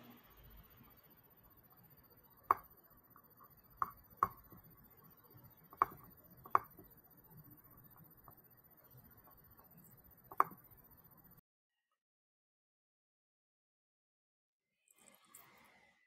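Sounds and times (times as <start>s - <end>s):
computer clicks: 1.8s - 11.0s.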